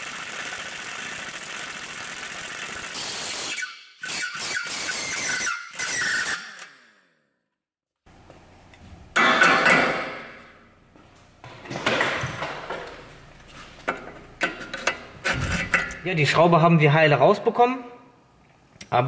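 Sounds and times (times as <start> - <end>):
impact wrench running: 0.0 - 6.9.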